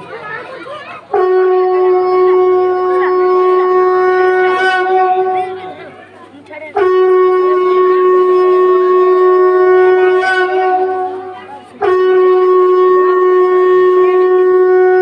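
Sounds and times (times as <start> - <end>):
conch shell blowing: 1.1 - 15.0.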